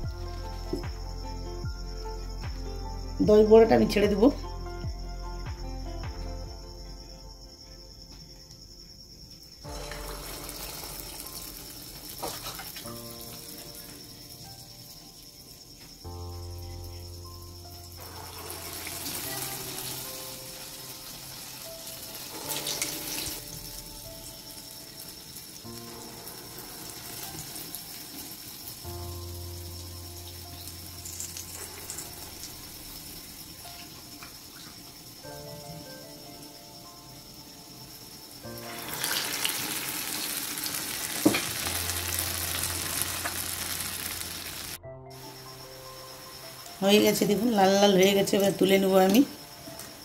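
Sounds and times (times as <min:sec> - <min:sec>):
soft background music: 0:00.0 - 0:50.0
batter sizzling in hot oil: 0:09.6 - 0:15.9, 0:17.7 - 0:35.2, 0:38.4 - 0:44.8.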